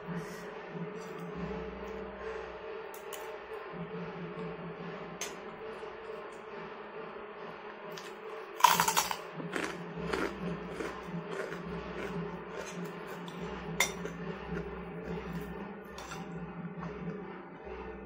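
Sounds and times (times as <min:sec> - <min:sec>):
steady low hum: 0:00.0 - 0:18.0
cracker crunching: 0:08.0 - 0:14.7.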